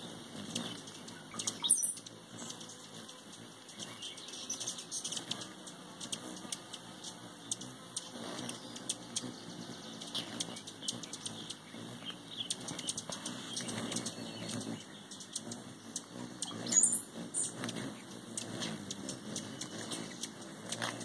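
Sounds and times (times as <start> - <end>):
hummingbird wings humming: 0.0 - 21.0
sharp squeaky bird call: 1.3 - 2.0, 16.4 - 17.6.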